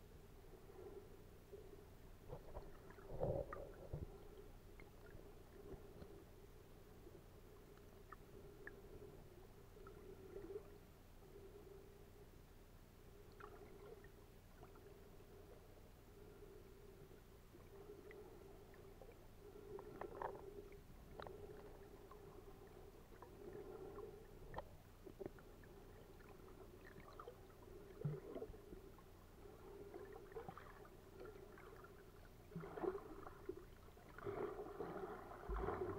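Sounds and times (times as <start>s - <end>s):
small underwater clicks and crackles: 1.5s - 11.5s, 13.2s - 16.4s, 17.0s - 35.9s
underwater wash of moving water: 21.1s - 35.9s.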